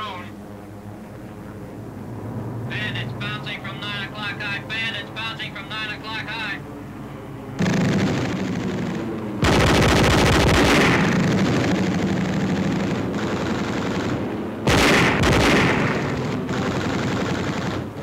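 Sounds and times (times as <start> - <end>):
machine guns firing rapid bursts: 7.6 - 18.0.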